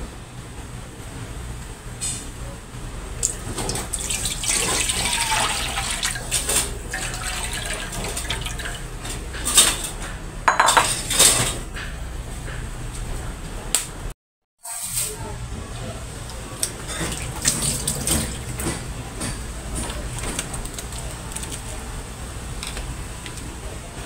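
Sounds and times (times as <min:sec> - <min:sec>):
bowl clinking against wok: 0:10.5 - 0:11.1.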